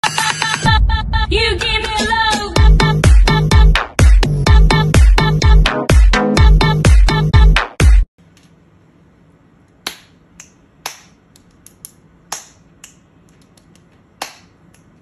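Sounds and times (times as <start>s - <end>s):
electronic dance music: 0.0s - 0.8s, 1.4s - 8.1s
finger snaps: 9.7s - 15.0s.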